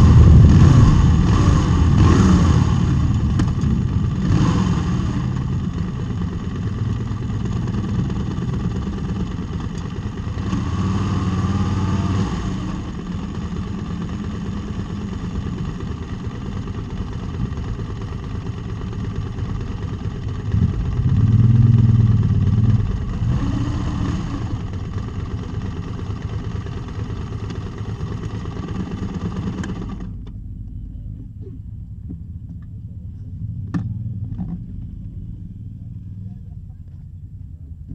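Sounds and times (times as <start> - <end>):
motorcycle pulling away: 0.0 - 30.3
motorcycle engine idling: 0.0 - 37.9.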